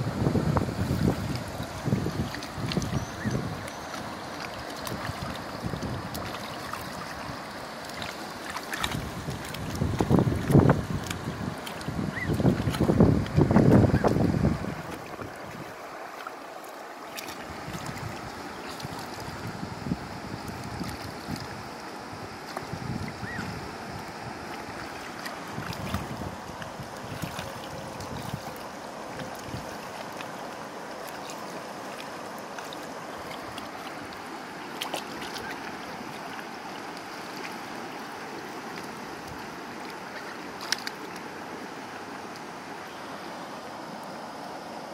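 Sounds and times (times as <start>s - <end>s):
wind rumble on microphone: 0.0s - 15.8s, 17.3s - 30.2s
geese splashing in water: 0.8s - 21.6s, 22.2s - 43.2s
sharp splashy ticks: 1.3s - 14.2s, 40.6s - 41.2s.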